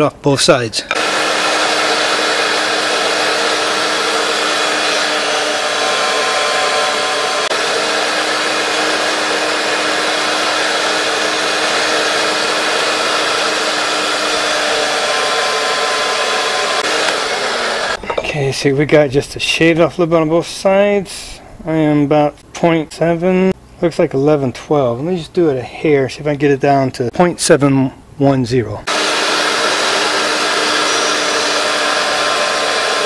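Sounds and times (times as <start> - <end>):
thickness planer running: 0.9 - 18.0, 28.9 - 33.0.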